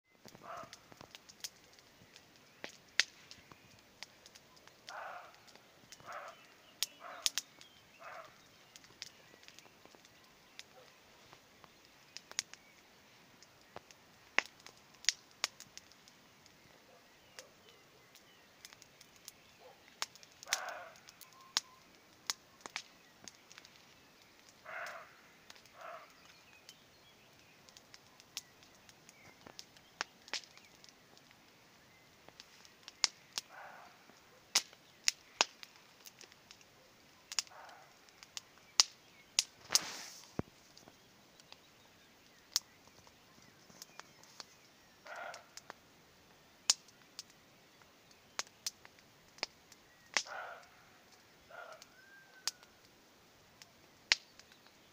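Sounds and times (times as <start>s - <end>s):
bonfire crackling: 0.1s - 54.9s
deer barking: 0.4s - 0.8s, 4.9s - 7.4s, 8.0s - 8.4s, 20.4s - 21.1s, 24.6s - 26.1s, 33.5s - 34.5s, 37.4s - 38.0s, 45.0s - 45.6s, 50.3s - 52.1s.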